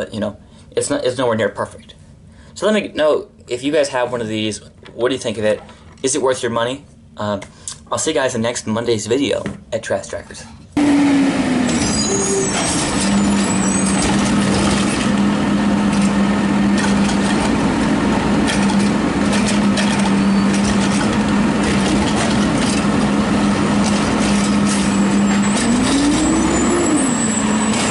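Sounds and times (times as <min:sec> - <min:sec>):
truck engine and hydraulics humming: 0:10.5 - 0:27.9
cart knocking and clattering: 0:11.8 - 0:15.1, 0:18.4 - 0:23.1, 0:23.7 - 0:26.3.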